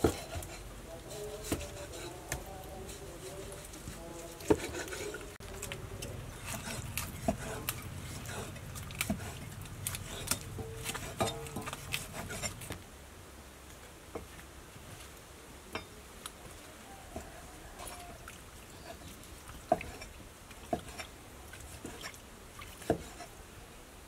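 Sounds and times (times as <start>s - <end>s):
knife cutting meat: 0.0s - 2.5s, 3.4s - 5.3s, 6.3s - 12.7s.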